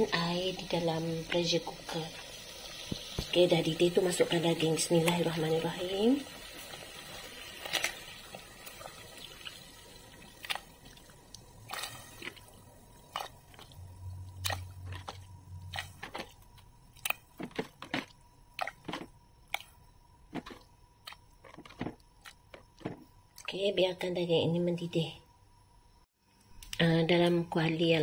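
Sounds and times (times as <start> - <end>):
bubbles popping and dripping: 6.2 - 16.3.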